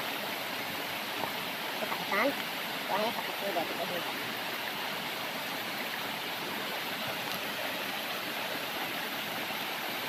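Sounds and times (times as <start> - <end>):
mountain stream rushing over rocks: 0.0 - 10.0.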